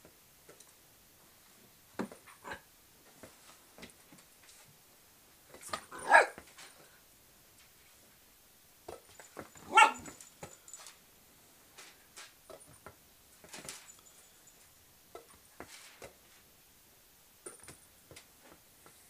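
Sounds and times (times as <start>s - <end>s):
small dog barking: 5.9s - 6.4s, 9.6s - 10.2s.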